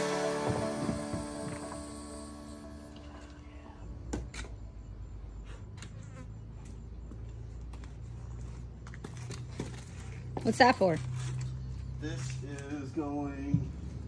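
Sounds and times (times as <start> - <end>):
steady low buzz: 0.0 - 3.6.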